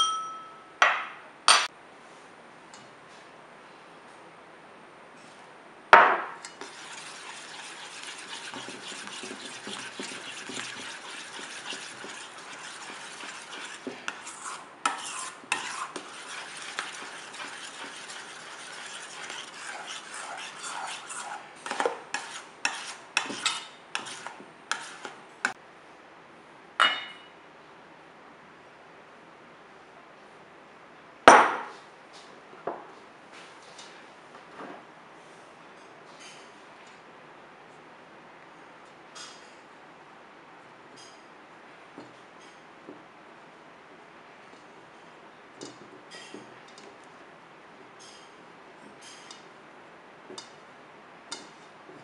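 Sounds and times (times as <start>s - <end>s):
spoon clinking against bowl: 0.0s - 0.7s
metal spoon stirring in bowl: 6.4s - 25.2s, 44.5s - 47.1s, 48.0s - 49.5s, 51.3s - 52.0s.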